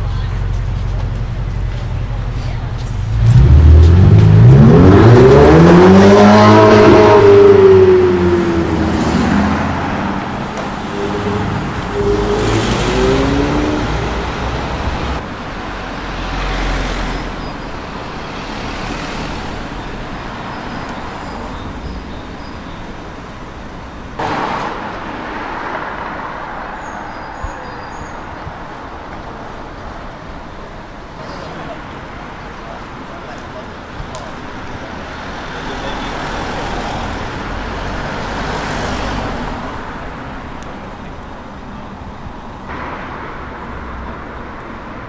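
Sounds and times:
traffic noise: 0:00.0 - 0:45.0
car engine accelerating hard: 0:03.0 - 0:15.2.

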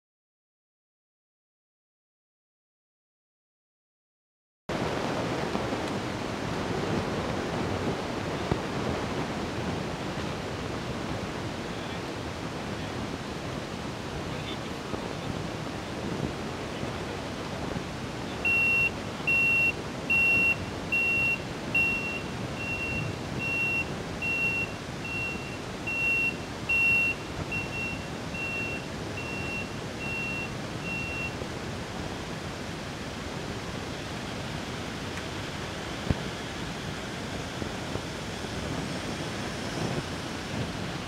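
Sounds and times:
noisy background: 0:04.7 - 0:41.0
reversing alarm beeping: 0:18.4 - 0:31.4.

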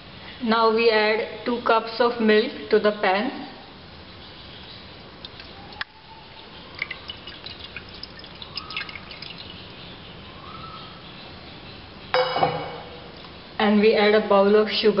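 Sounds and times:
dripping: 0:04.3 - 0:10.1
milk pouring into a frying pan: 0:05.0 - 0:09.9
sharp knock: 0:12.2 - 0:13.1.

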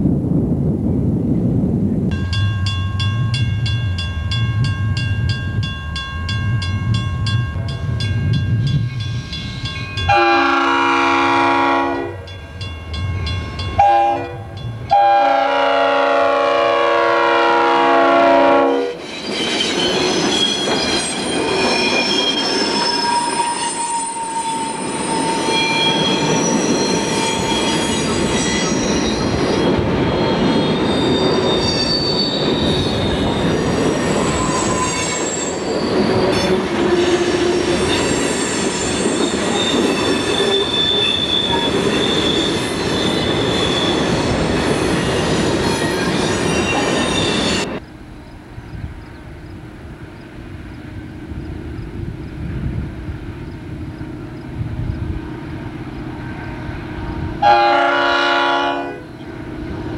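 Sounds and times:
freight train rumble and clatter: 0:00.0 - 0:59.9
train wheels squealing on rails: 0:18.6 - 0:59.9.

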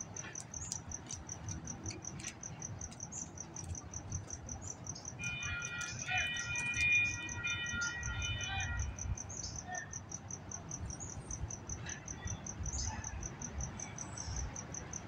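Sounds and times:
crossing warning bell pings: 0:05.0 - 0:10.9.

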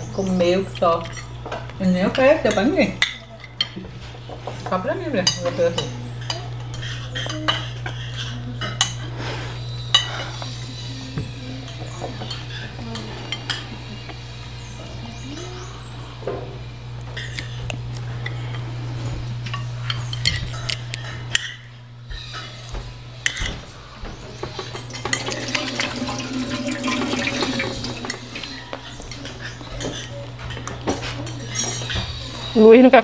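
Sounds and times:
cutlery clinking on plates: 0:23.2 - 0:23.6, 0:24.4 - 0:32.2.

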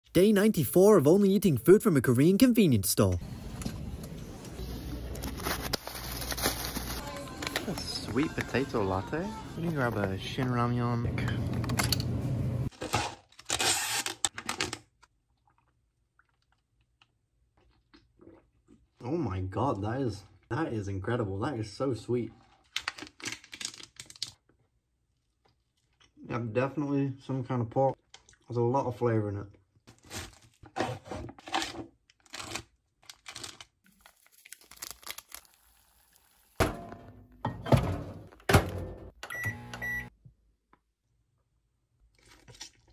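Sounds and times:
plastic packaging tearing and crinkling: 0:05.1 - 0:07.9, 0:22.6 - 0:24.4, 0:31.4 - 0:36.6.

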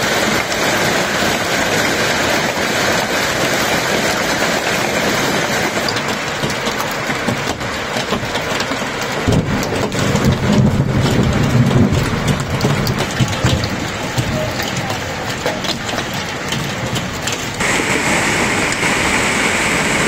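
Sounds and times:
hailstones hitting surfaces: 0:00.0 - 0:20.0
heavy rain hiss: 0:00.0 - 0:20.0
deep rumble: 0:17.6 - 0:20.0.

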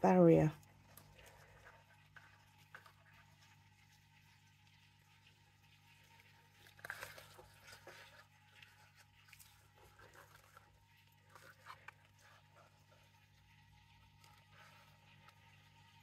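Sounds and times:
gloved hands handling plastic cup: 0:06.4 - 0:13.1.

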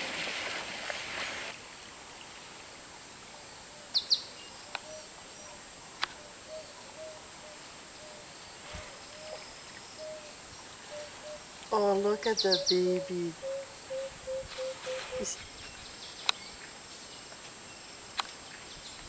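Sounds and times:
steady background hiss: 0:00.0 - 0:19.0
birds chirping: 0:04.0 - 0:16.8.

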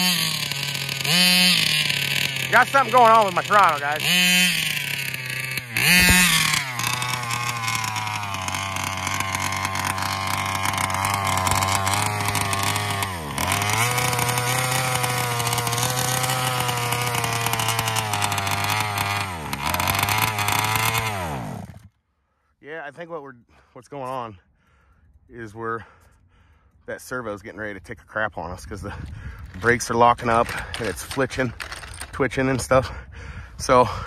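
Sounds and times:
two-stroke model engine running: 0:00.0 - 0:22.0.

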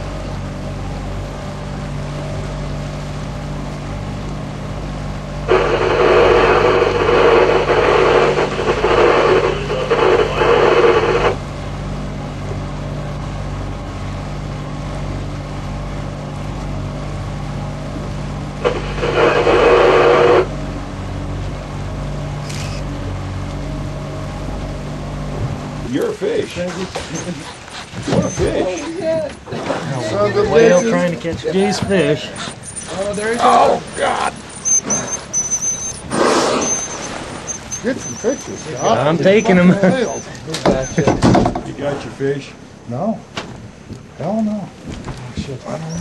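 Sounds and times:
boat engine humming: 0:00.0 - 0:46.0.

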